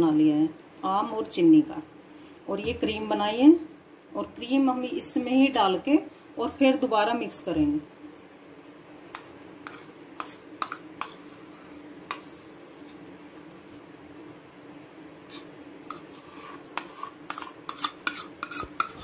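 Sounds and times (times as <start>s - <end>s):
faint steady hum: 0.0s - 19.0s
utensil clinking against steel bowl: 16.6s - 19.0s.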